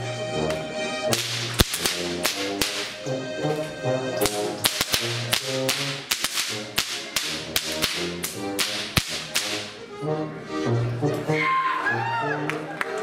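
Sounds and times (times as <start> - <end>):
folk music: 0.0 - 13.0
sharp loud cracks: 1.1 - 3.1, 4.2 - 9.8.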